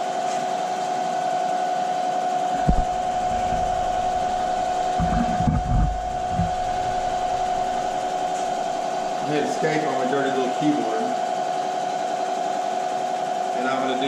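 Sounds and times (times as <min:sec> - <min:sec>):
milling machine whine: 0:02.5 - 0:09.9
low thumps: 0:02.6 - 0:09.3.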